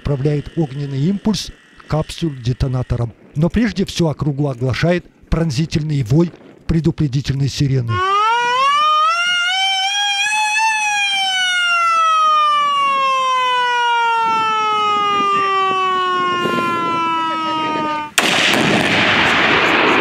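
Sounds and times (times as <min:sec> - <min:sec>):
warning siren wailing: 0:00.0 - 0:02.6, 0:07.9 - 0:18.2
loud burst of noise: 0:18.1 - 0:20.0.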